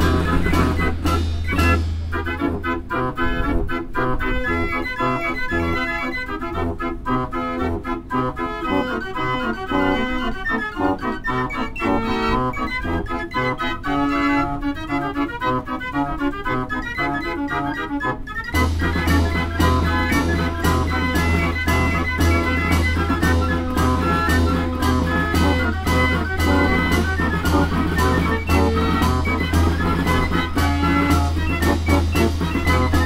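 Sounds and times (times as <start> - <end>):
drum and cymbal beats: 0.0 - 2.8, 18.6 - 33.0
fair organ playing a tune: 0.0 - 33.0.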